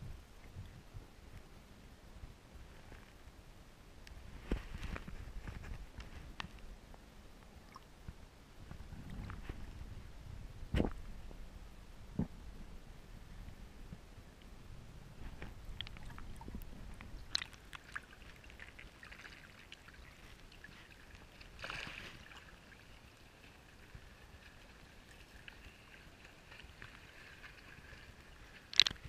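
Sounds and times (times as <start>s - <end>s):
water sloshing and gurgling: 14.3s - 29.0s
rush of water: 14.4s - 29.0s
sharp water splash: 21.5s - 22.6s.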